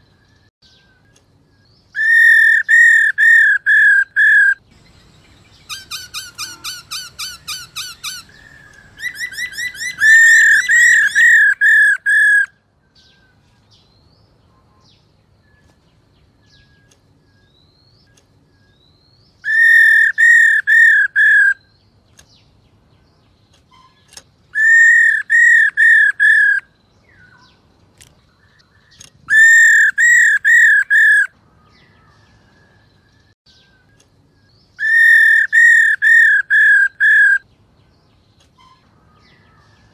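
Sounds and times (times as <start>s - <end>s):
laughingthrush calling: 2.0s - 12.5s, 19.4s - 21.6s, 34.8s - 37.4s.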